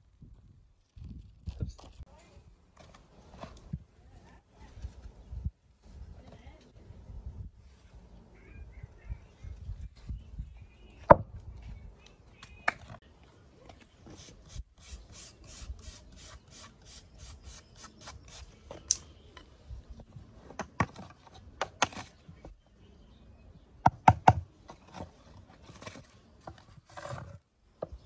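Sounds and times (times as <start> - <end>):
wire brush scrubbing wood: 14.1 - 18.5.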